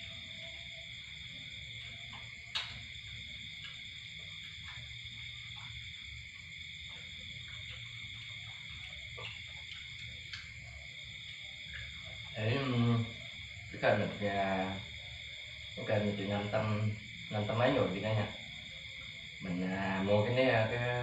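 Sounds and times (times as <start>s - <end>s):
frogs and insects calling: 0.0s - 21.0s
sharp click: 2.5s - 2.8s.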